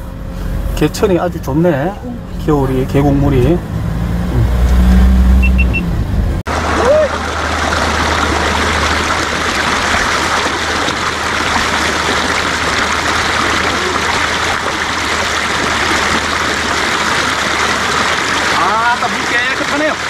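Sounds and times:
stream running over rocks: 6.5 - 20.0.

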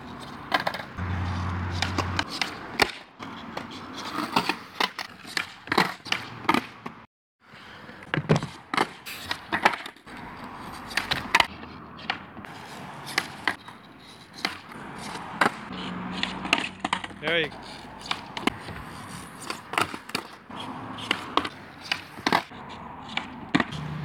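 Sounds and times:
skateboard wheels rolling: 0.0 - 24.0
skateboard deck slapping concrete: 0.2 - 7.0, 8.1 - 23.9
skateboard tail popping: 14.4 - 15.6, 16.2 - 22.5.

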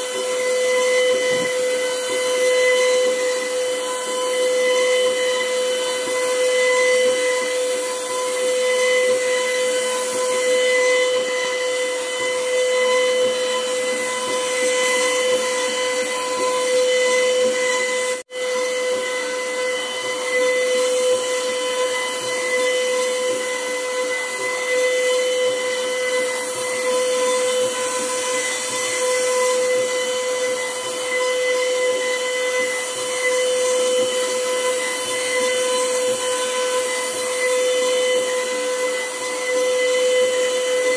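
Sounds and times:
bit carving wood hiss: 0.0 - 40.9
router spindle high whine: 0.0 - 40.9.

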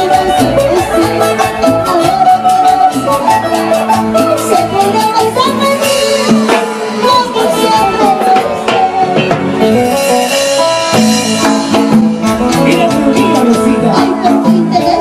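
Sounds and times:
drum kit steady beat: 0.0 - 15.0
live band music over loudspeakers: 0.0 - 15.0.

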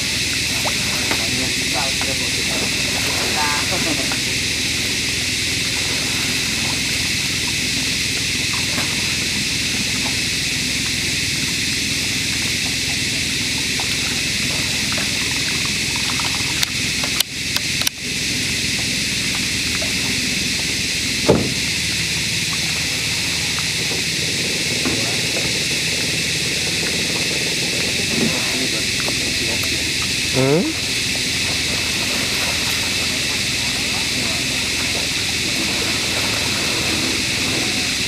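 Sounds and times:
steady hiss: 0.0 - 38.0
short thump: 21.2 - 21.7.

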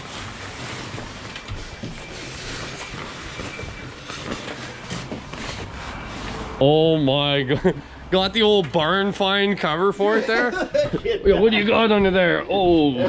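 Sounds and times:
fabric cover rustling and scraping: 0.0 - 6.8.

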